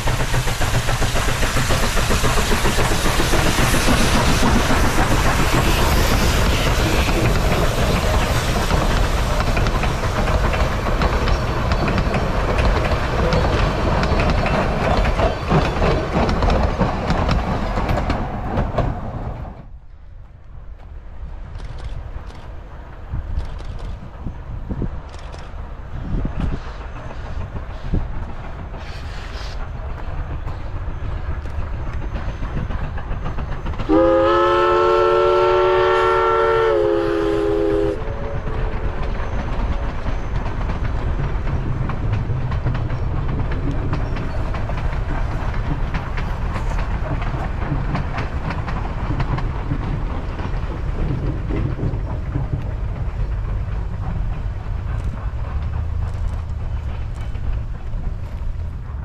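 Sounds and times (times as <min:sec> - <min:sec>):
steam train rumbling: 0:00.0 - 0:59.0
wheels clacking on rails: 0:00.0 - 0:59.0
steam whistle blast: 0:33.9 - 0:38.4.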